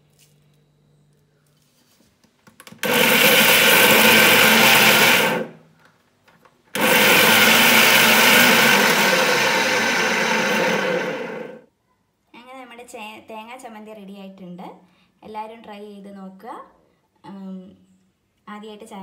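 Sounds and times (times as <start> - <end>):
mixer grinder running: 2.8 - 5.6, 6.8 - 11.6.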